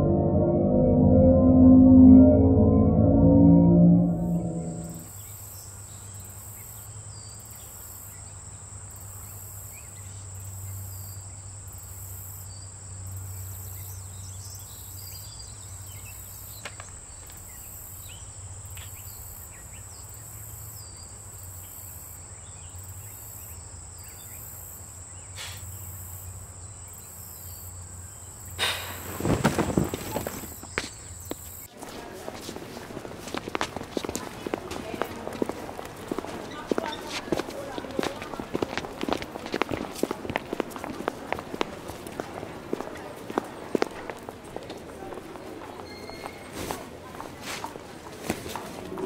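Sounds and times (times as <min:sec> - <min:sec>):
low steady hum: 0:00.0 - 0:05.1.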